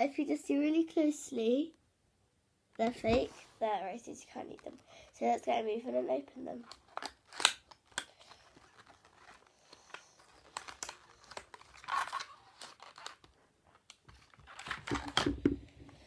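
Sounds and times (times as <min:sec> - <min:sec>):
small clicks and rustles: 0:06.6 - 0:15.2
packaging tearing and crinkling: 0:06.6 - 0:15.4.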